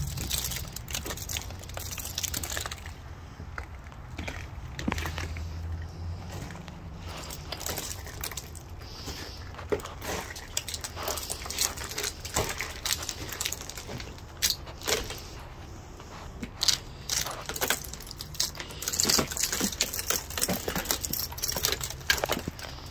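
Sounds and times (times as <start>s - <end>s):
ice cracking and tinkling: 0.0s - 3.0s, 7.2s - 8.8s, 9.8s - 15.2s, 16.6s - 22.9s.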